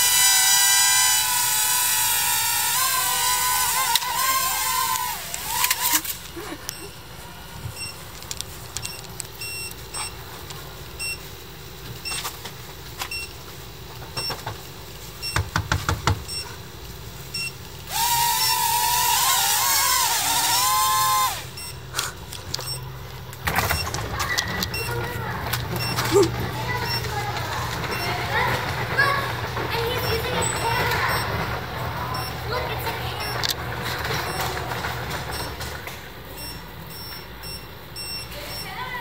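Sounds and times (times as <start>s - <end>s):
quadcopter motors whining: 0.0s - 6.9s, 17.9s - 21.8s.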